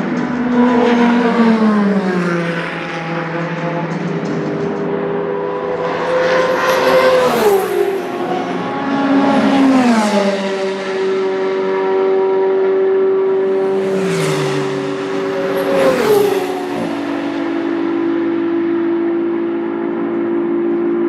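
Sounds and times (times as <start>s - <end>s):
race cars passing at speed: 0.0s - 21.0s.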